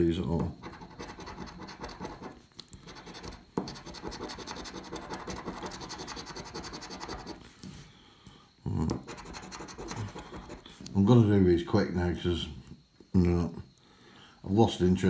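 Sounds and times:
coin scratching a scratchcard: 0.6s - 7.4s, 9.0s - 10.7s.

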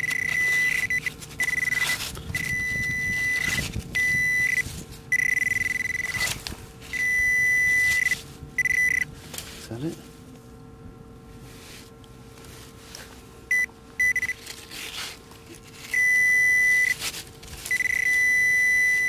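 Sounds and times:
high steady beep: 0.0s - 1.8s, 2.4s - 6.1s, 7.0s - 9.1s, 13.5s - 14.4s, 16.0s - 17.0s, 17.7s - 19.0s
probe scraping through gravel: 14.2s - 18.3s.

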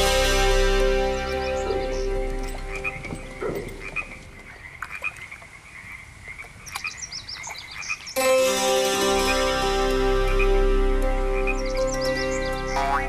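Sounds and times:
background music: 0.0s - 4.4s, 8.2s - 13.0s
frogs calling: 1.3s - 8.2s, 9.2s - 13.0s.

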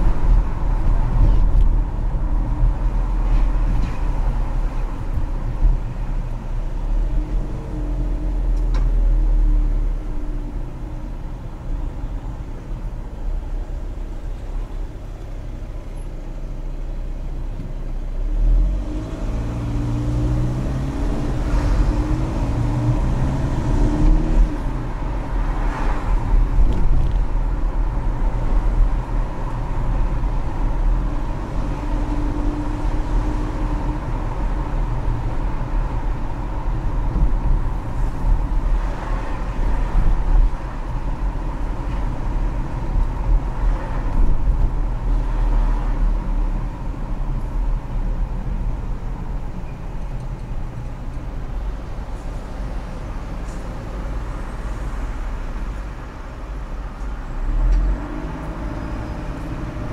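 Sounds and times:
car engine accelerating: 18.2s - 49.4s, 57.3s - 59.9s.

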